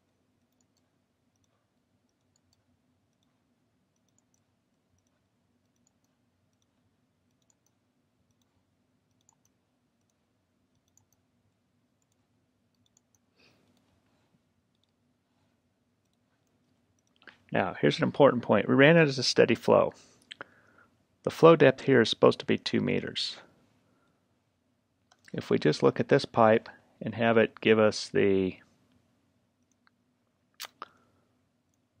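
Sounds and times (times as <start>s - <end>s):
computer mouse clicks: 0.0s - 14.0s, 14.7s - 15.0s, 16.0s - 17.4s, 25.1s - 25.4s.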